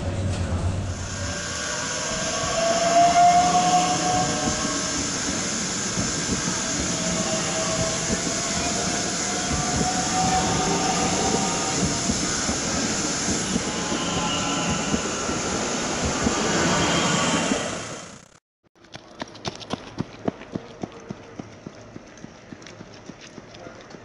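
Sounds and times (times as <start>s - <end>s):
train rolling noise: 0.0s - 18.4s.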